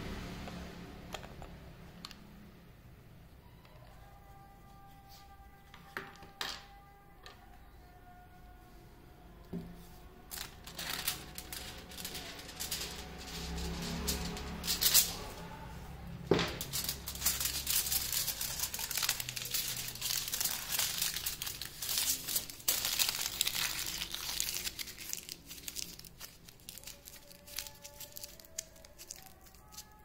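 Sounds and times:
aluminium foil crinkling: 10.2 - 15.6, 16.3 - 30.0.

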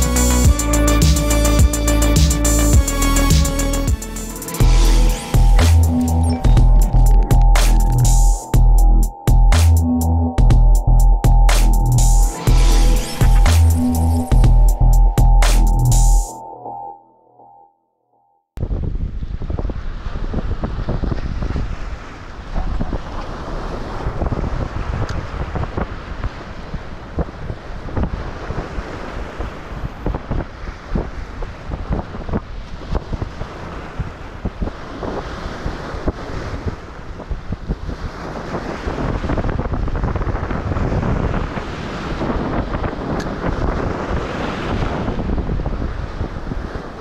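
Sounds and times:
wind buffeting microphone: 18.6 - 47.0.

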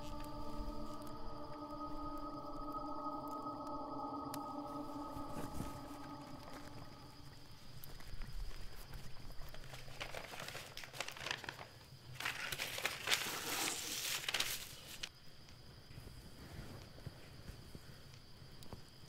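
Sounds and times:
paper rustling and crinkling: 8.8 - 15.1.

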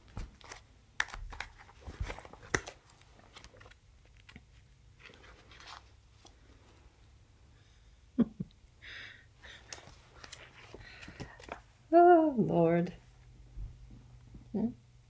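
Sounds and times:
magazine pages crinkling: 0.0 - 6.5, 9.6 - 11.7
faint paper rustling: 0.1 - 6.8, 9.4 - 11.7.

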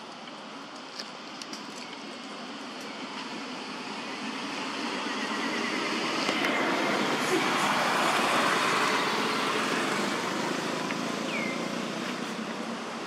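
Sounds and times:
road traffic noise: 0.0 - 13.0
vehicle passing: 4.2 - 12.9.

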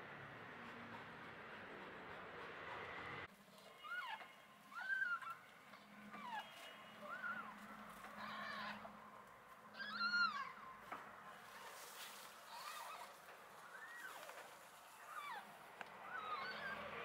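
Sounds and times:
kittens mewing: 6.1 - 9.0, 9.7 - 10.6.

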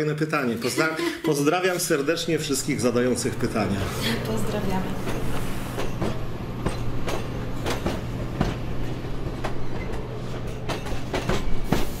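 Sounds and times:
train running with low hum: 2.4 - 12.0
wheels clacking over rail joints: 5.8 - 12.0.

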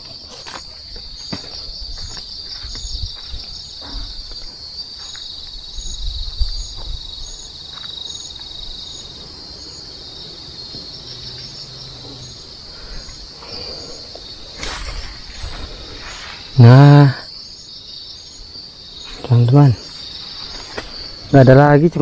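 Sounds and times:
footsteps through undergrowth: 0.0 - 5.6, 14.2 - 16.6, 18.5 - 21.3
crickets trilling and chirping: 0.0 - 22.0.

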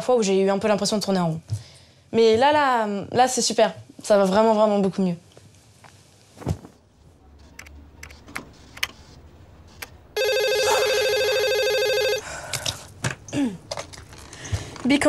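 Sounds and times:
electronic telephone ring: 10.2 - 12.2.

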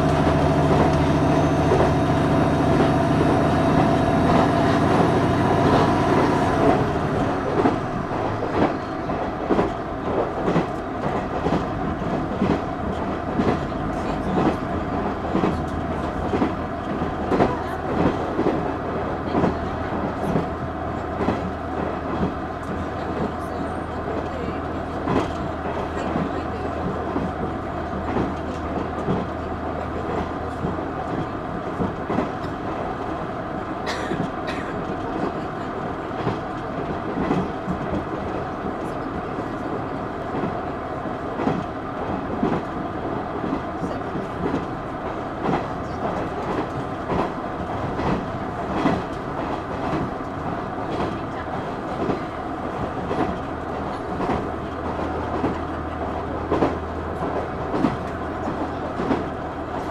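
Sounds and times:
low diesel engine drone: 0.0 - 11.0, 42.9 - 59.9
train running rumble: 0.0 - 59.9.

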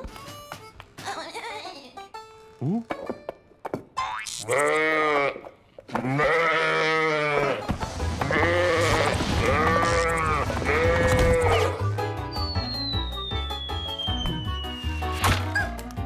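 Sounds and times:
cartoon sheep bleating: 4.4 - 7.6, 8.2 - 11.8.

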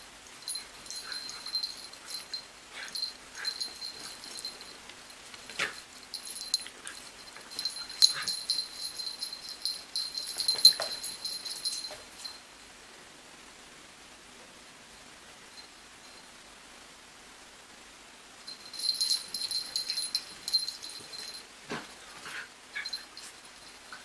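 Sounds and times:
puppies scuffling: 0.4 - 12.3.

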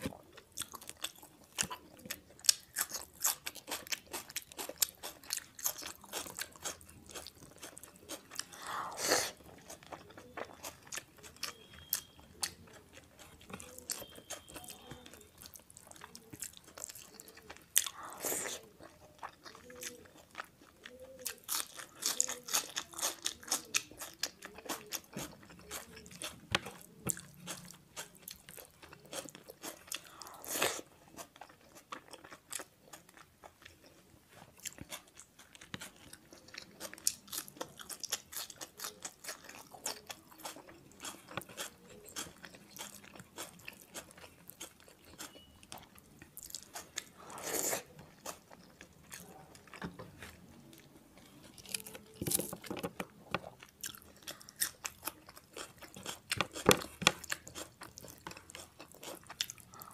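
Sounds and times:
loud chewing crunches: 0.0 - 59.9
wet chewing clicks and smacks: 34.6 - 47.2, 47.8 - 59.9.

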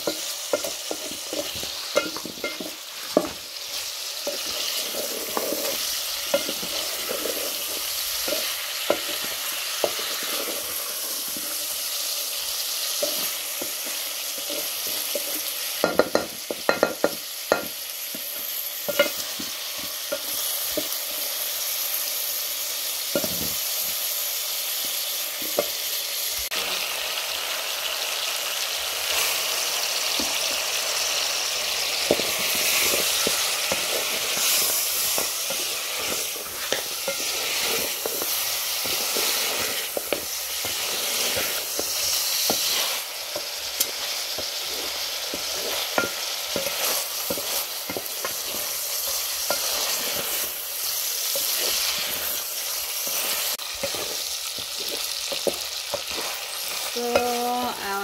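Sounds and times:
wooden spatula scraping pot: 0.0 - 11.9, 12.8 - 17.0, 32.0 - 57.4
meat and onions sizzling: 0.0 - 58.0.

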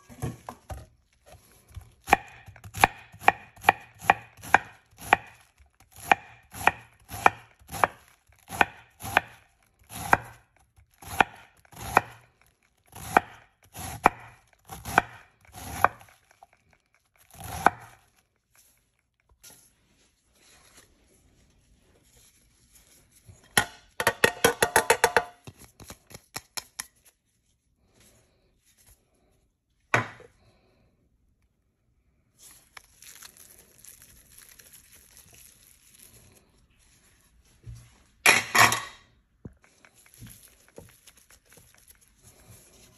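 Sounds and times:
knife chopping cabbage on wooden board: 1.7 - 12.3, 12.9 - 16.2, 17.2 - 18.0.

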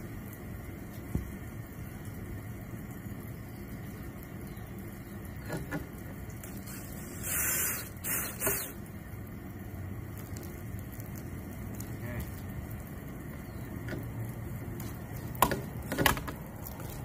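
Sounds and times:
cordless drill driving screw: 6.6 - 8.8.

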